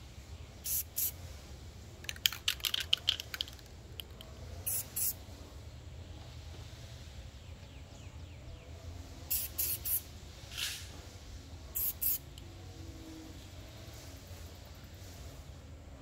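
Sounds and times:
spray paint can bursts: 0:00.6 - 0:01.2, 0:02.0 - 0:05.2, 0:09.3 - 0:10.9, 0:11.8 - 0:12.4.

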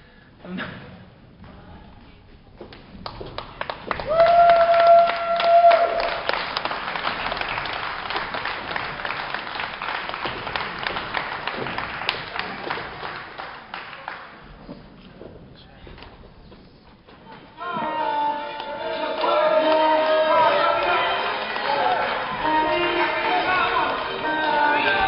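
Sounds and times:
crowd applauding: 0:02.7 - 0:14.6, 0:17.7 - 0:25.0.

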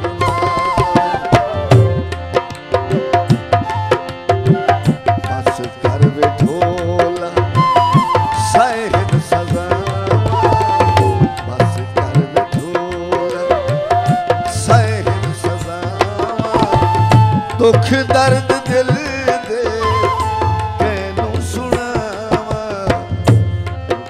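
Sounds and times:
gliding melody line: 0:00.0 - 0:14.7
tabla playing a steady rhythm: 0:00.0 - 0:24.0.

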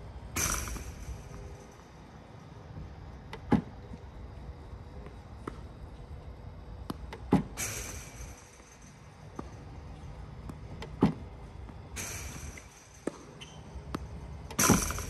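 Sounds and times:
tennis balls struck and bouncing: 0:00.3 - 0:15.0
ball machine sharp pops: 0:00.4 - 0:01.8, 0:10.5 - 0:15.0.

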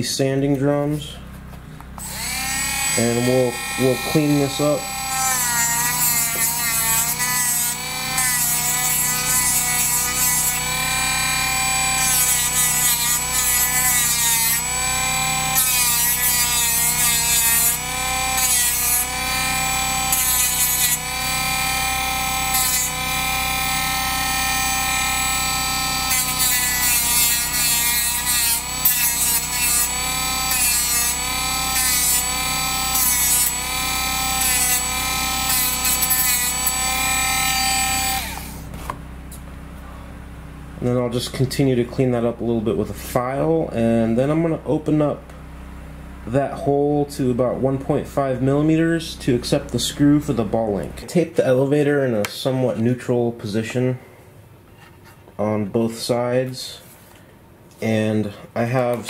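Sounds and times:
rotary tool motor whine: 0:01.9 - 0:38.8.

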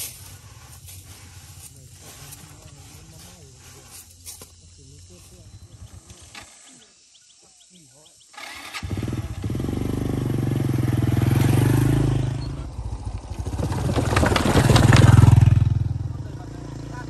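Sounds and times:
motorbike engine passing: 0:08.3 - 0:17.0
wheels knocking on wooden planks: 0:13.3 - 0:15.7.

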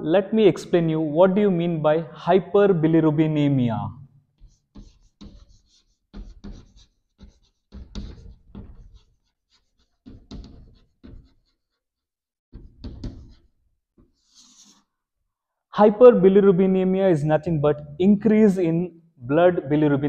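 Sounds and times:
chalk scratching on chalkboard: 0:04.4 - 0:15.0.

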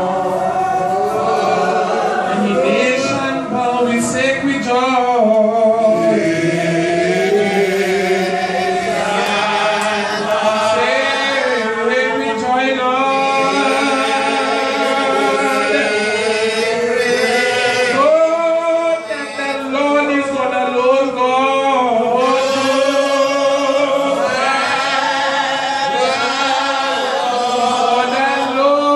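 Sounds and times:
man singing into a microphone: 0:00.0 - 0:28.9.

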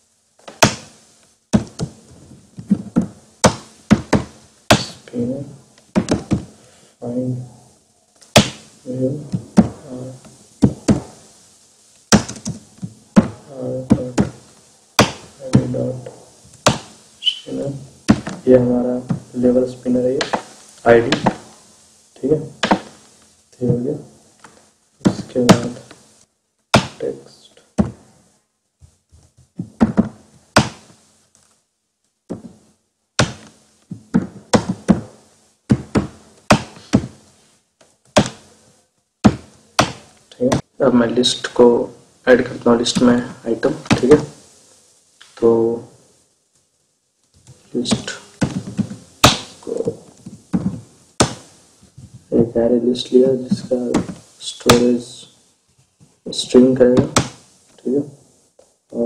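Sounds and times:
low wordless voice murmur: 0:04.8 - 0:05.6, 0:07.0 - 0:07.6, 0:08.9 - 0:10.2, 0:13.5 - 0:14.2, 0:17.2 - 0:17.8, 0:45.4 - 0:45.8.

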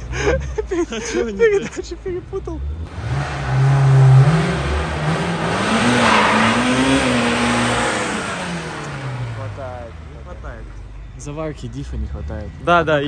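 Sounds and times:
car engine revving: 0:02.7 - 0:10.7.

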